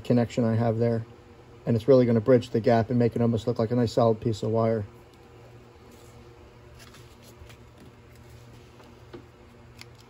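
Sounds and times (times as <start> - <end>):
faint electrical hum: 0.0 - 10.0
soft rustles: 5.8 - 9.2.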